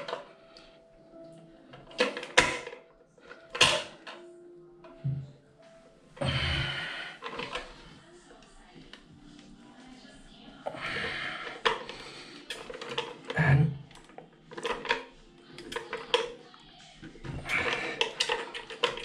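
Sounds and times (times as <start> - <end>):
plastic valve parts clicking and rattling: 0.0 - 0.3, 1.7 - 4.2, 7.2 - 7.8, 10.7 - 16.4, 17.0 - 19.0.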